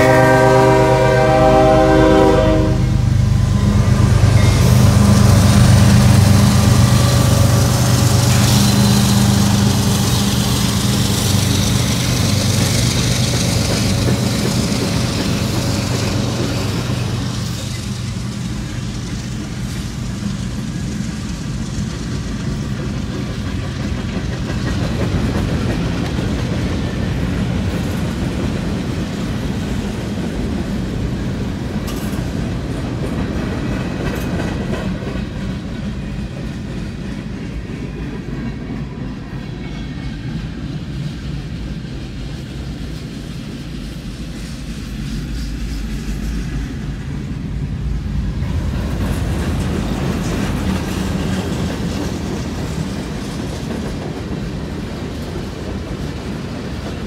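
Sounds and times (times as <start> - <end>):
train horn: 0.0 - 11.5
diesel locomotives rumbling: 0.0 - 57.0
freight cars rolling on rails: 0.0 - 57.0.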